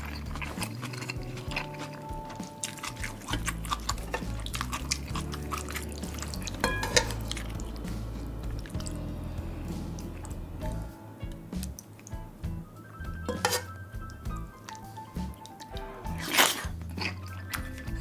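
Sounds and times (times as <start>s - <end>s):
spoon moving through stew: 0.0s - 12.2s, 13.0s - 18.0s
wet chewing and smacking: 0.0s - 12.3s, 13.1s - 18.0s
soft background music: 0.0s - 18.0s
spoon clinking against bowl: 6.6s - 7.2s, 13.3s - 13.8s.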